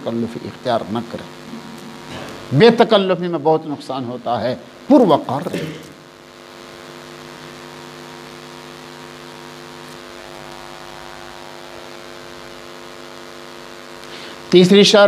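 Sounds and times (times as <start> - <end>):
electrical mains hum: 0.0 - 15.0
faint hiss: 9.8 - 15.0.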